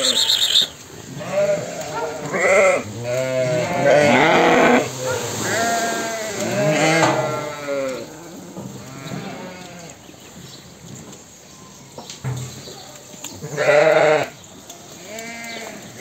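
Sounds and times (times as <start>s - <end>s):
sheep bleating: 1.1s - 10.0s, 13.5s - 14.4s, 15.0s - 15.8s.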